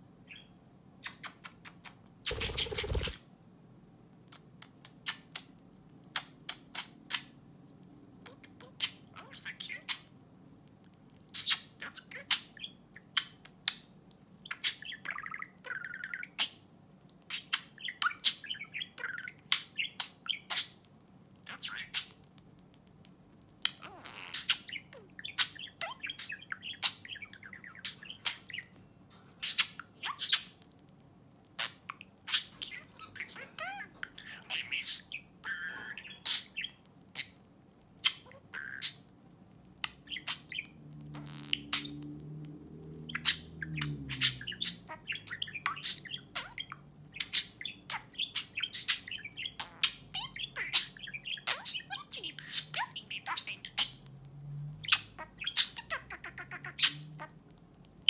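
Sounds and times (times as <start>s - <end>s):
budgerigar chirping: 2.3s - 3.2s, 38.0s - 39.0s, 39.8s - 42.0s, 43.0s - 54.1s, 54.8s - 57.4s.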